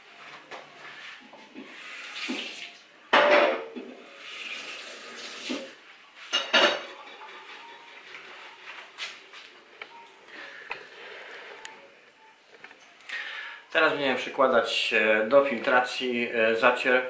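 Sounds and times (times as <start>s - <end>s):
dishes and utensils clattering: 3.1s - 4.1s, 5.5s - 8.2s.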